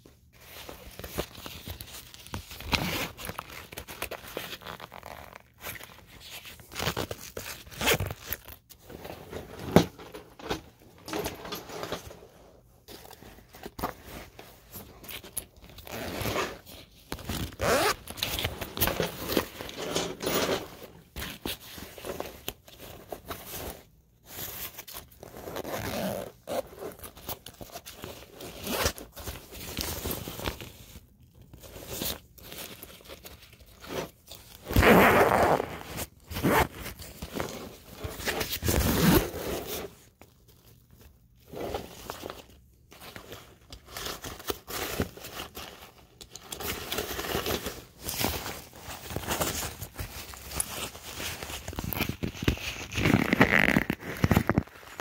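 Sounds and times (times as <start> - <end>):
backpack zipper pulled: 15.8 - 16.6, 17.5 - 18.0, 25.4 - 26.6, 34.7 - 36.7, 53.0 - 54.6.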